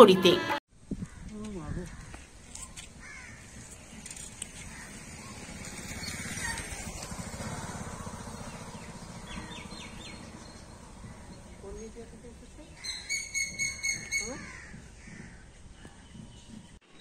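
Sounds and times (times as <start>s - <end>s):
motorcycle passing by: 3.1s - 15.4s
bird chirps: 8.2s - 12.1s, 12.8s - 14.4s.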